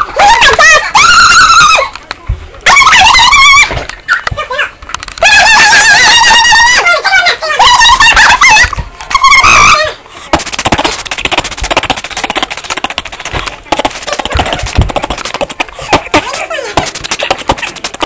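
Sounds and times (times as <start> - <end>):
rapid crackling clicks: 10.3 - 18.0.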